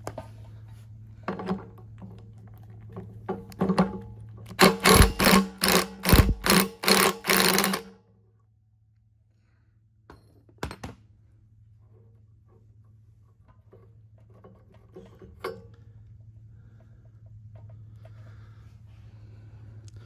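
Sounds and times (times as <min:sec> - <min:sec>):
impact wrench hammering: 0:04.6 - 0:07.9.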